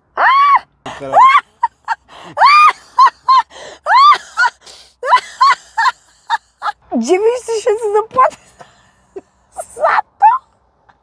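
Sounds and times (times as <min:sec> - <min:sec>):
woman laughing hard: 0:01.0 - 0:06.8.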